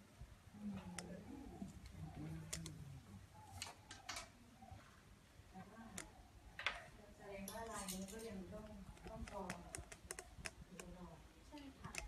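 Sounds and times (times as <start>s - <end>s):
faint murmur of voices: 0.0s - 12.0s
sharp clicks: 1.8s - 2.8s, 5.9s - 6.8s, 7.5s - 12.0s.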